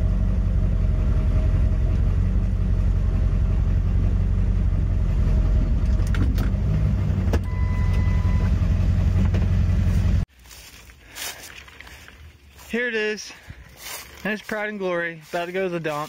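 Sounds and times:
truck engine rumbling: 0.0s - 16.0s
brief high tone: 7.4s - 8.7s.

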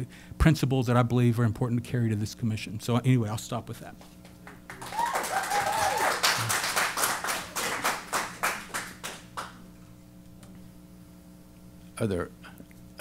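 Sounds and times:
audience clapping: 4.2s - 9.6s.

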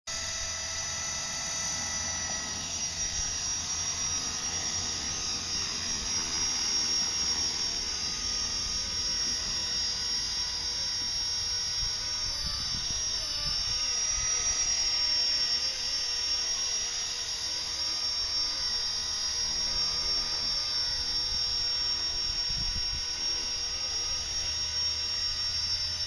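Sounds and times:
toy helicopter motor whine: 0.1s - 26.0s.

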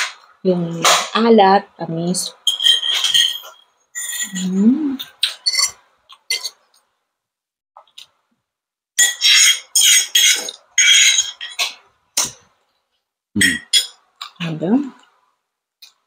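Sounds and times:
fork clinking on plate: 2.5s - 4.5s, 5.2s - 6.6s
fork scraping on plate: 5.2s - 6.6s, 9.0s - 11.7s.

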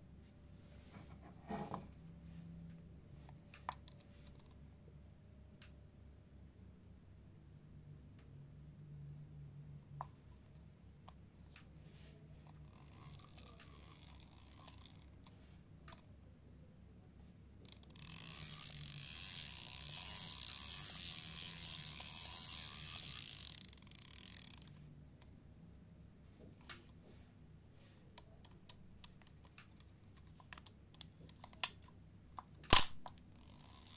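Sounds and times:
fishing reel ratcheting whir: 12.6s - 15.2s, 17.6s - 24.9s, 33.4s - 33.9s.

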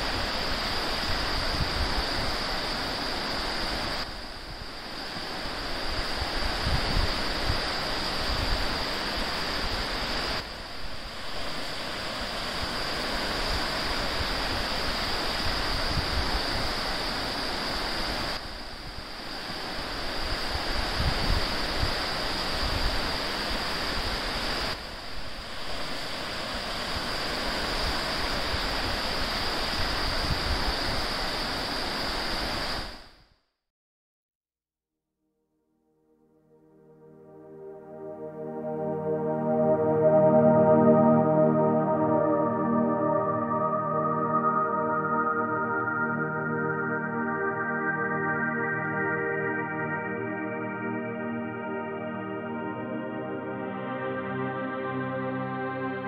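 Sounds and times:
wind rumbling on microphone: 0.0s - 33.0s
high-pitched hiss: 0.0s - 33.3s, 36.5s - 56.0s.

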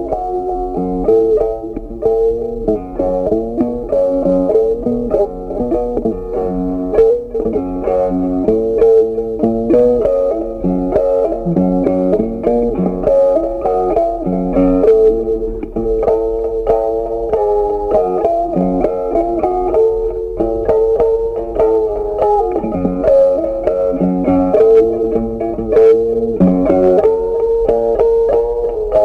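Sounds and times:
plucked guitar tune: 0.0s - 29.0s.

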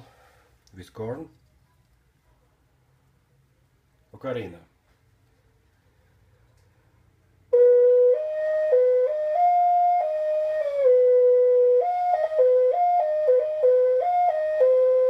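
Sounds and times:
ocarina playing simple tune: 7.5s - 15.0s.

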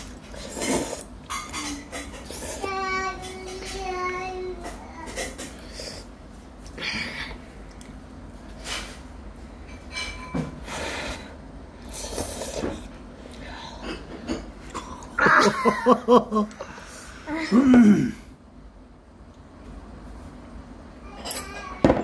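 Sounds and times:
child slurping noodles: 0.3s - 1.1s, 10.8s - 12.9s
child voice: 1.6s - 5.4s, 21.0s - 22.0s.

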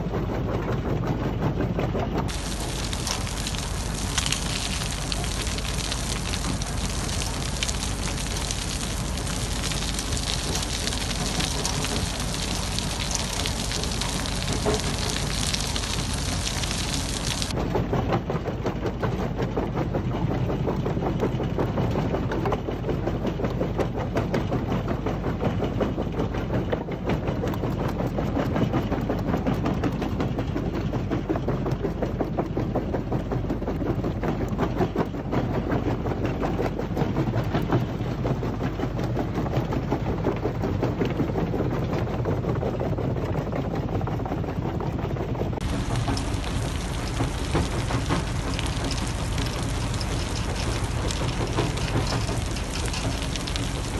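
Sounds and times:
machine hum: 2.3s - 17.5s, 45.6s - 53.9s
rubble cracking and rattling: 2.3s - 17.6s, 45.6s - 53.9s.

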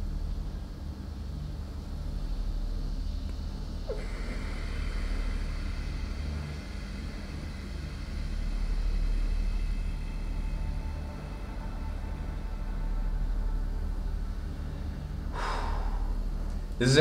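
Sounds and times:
steady low rumble: 0.0s - 17.0s
man breathing deeply through nose: 3.9s - 11.6s, 15.2s - 16.8s.

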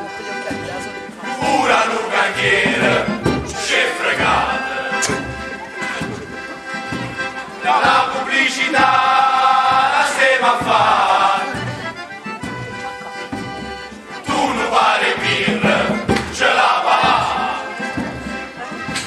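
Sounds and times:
friction drum pulses: 0.4s - 19.0s
men singing in chorus: 1.3s - 5.3s, 7.6s - 11.6s, 14.2s - 17.8s.

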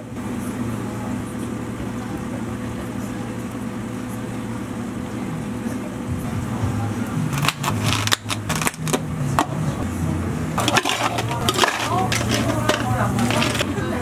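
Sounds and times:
low hum of cafe equipment: 0.0s - 14.0s
plastic cups and ice clicking: 7.3s - 9.6s, 10.6s - 14.0s
ice cubes clattering into cup: 7.4s - 9.0s, 10.6s - 13.8s.

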